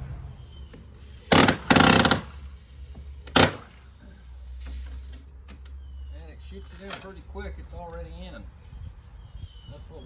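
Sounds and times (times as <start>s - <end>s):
nail gun firing into wood: 1.3s - 2.4s, 3.3s - 3.7s.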